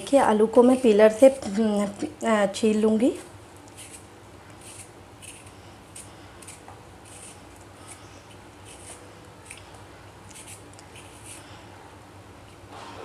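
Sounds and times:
peeler scraping potato skin: 3.6 - 9.6, 10.3 - 11.4.

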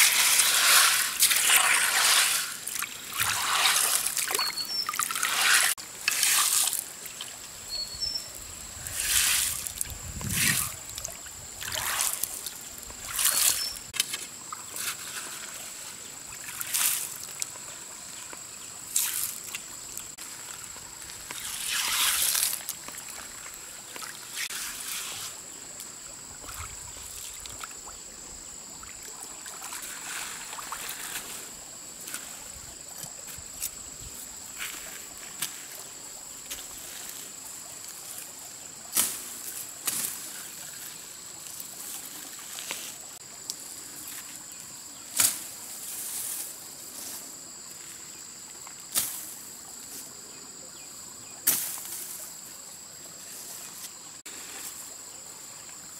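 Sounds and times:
water sloshing: 0.0 - 7.6
insects droning: 0.0 - 55.9.

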